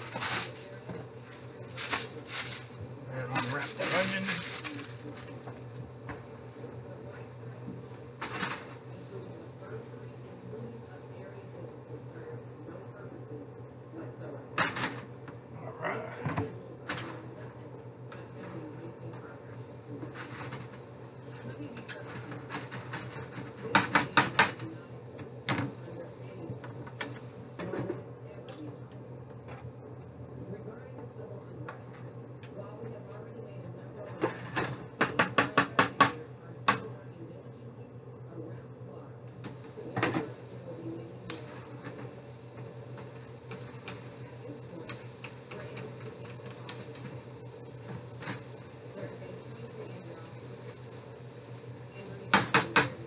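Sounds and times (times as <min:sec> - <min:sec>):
steady low hum: 0:00.0 - 0:53.0
utensil knocking on frying pan: 0:52.3 - 0:53.0.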